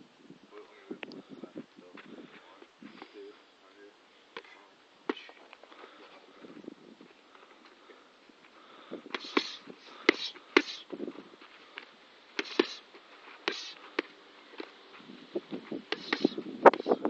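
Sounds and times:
short hissing breaths: 7.3s - 15.1s, 15.8s - 17.0s
boxing gloves smacking focus mitts: 9.1s - 10.8s, 11.8s - 14.8s.

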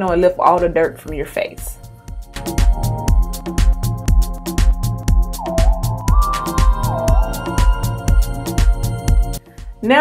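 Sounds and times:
electronic music with steady beat: 1.8s - 9.8s.

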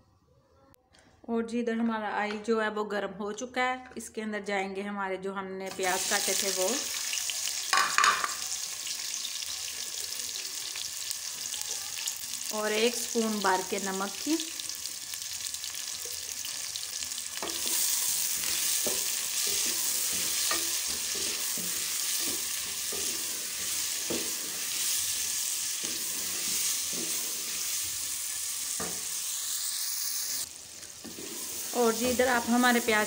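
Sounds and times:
onions sizzling in oil: 5.7s - 33.0s
wooden spatula scraping a pot: 17.4s - 28.0s, 31.0s - 32.2s.

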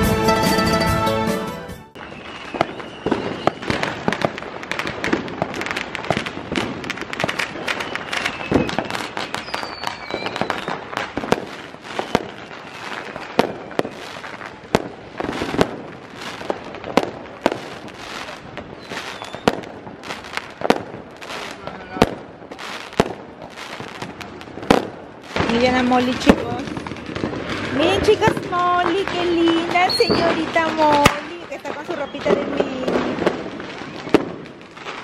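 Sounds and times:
firework whistles: 1.9s - 14.6s, 17.4s - 20.5s, 27.5s - 35.0s
fireworks bangs and crackles: 1.9s - 35.0s.

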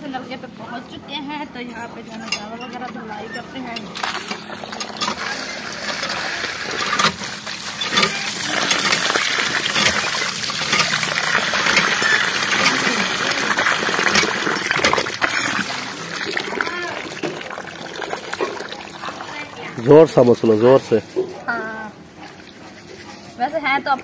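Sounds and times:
water pouring and splashing: 3.9s - 21.1s.

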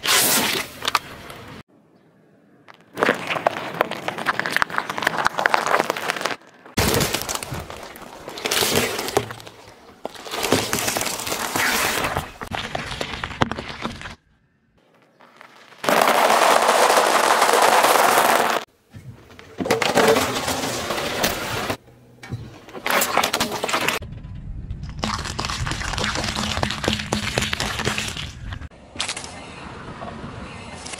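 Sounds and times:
tyre crushing food: 3.0s - 14.2s, 15.2s - 18.7s, 25.0s - 28.6s
peppers cracking and splitting: 5.0s - 12.1s.

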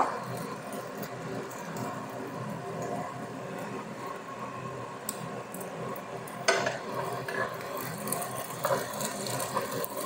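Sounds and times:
burger patties sizzling: 0.0s - 10.0s.

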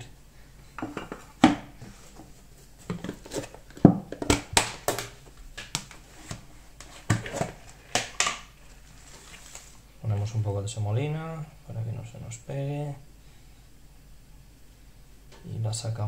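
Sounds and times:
plastic containers knocking on stone: 2.9s - 5.9s.

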